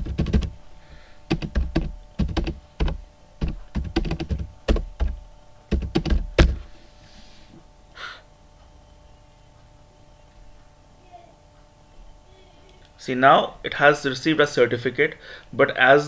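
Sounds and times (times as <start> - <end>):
typing on a keyboard: 0.0 - 0.6, 1.3 - 6.4.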